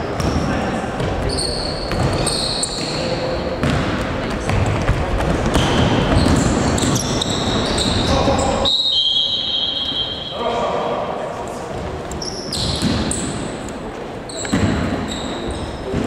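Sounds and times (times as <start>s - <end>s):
players' voices: 0.0s - 12.2s
sneakers squeaking on court: 0.2s - 10.3s, 11.7s - 16.0s
basketball bouncing: 1.0s - 2.2s, 3.6s - 8.1s.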